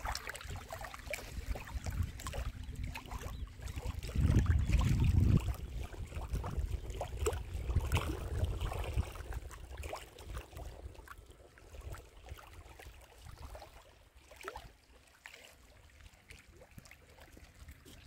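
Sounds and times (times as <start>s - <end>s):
waves lapping on rocky shore: 0.0s - 11.2s.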